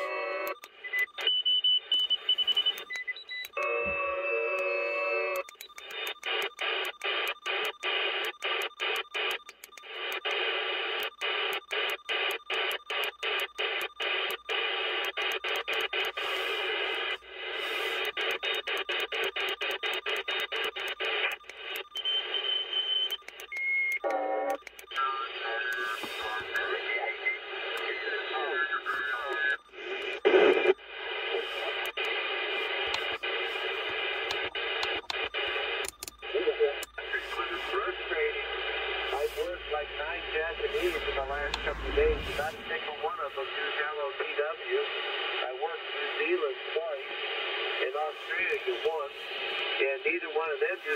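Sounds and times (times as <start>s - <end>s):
radio static hiss: 6.0s - 22.4s, 24.0s - 50.9s
radio signal burst: 25.2s - 50.9s.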